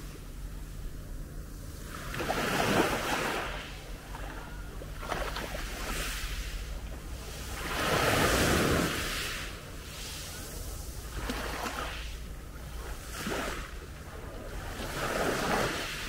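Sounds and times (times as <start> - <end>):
waves washing up pebble beach: 7.4 - 12.1.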